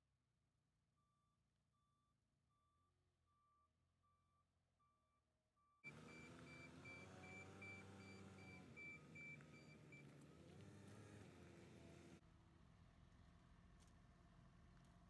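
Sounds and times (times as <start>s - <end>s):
reversing alarm beeping: 5.8s - 10.1s
forklift engine running: 5.9s - 12.2s.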